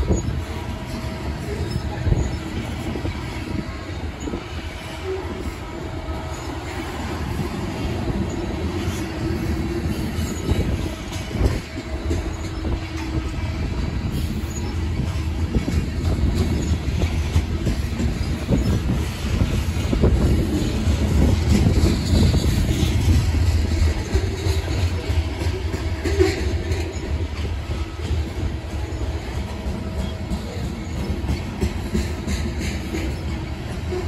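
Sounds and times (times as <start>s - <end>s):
faint wheel squeal: 0.0s - 15.7s
train knocks: 0.0s - 34.0s
train wheels rumbling on rail: 0.0s - 34.0s.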